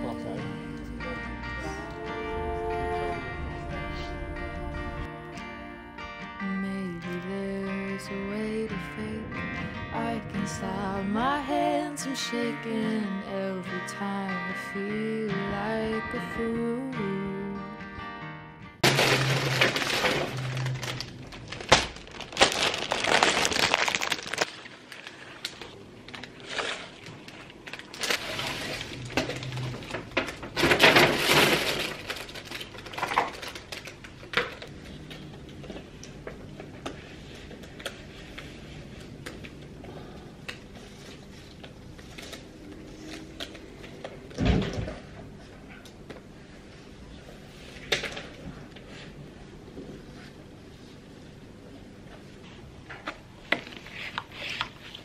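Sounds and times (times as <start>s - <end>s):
paper bag rustling: 18.8s - 34.0s.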